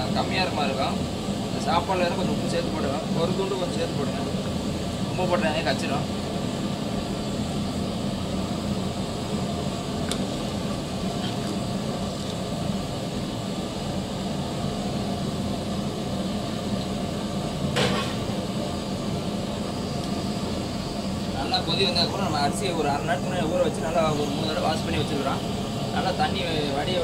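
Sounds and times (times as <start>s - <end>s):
liquid boiling in a pot: 0.0s - 27.0s
knock or scrape: 17.8s - 18.3s.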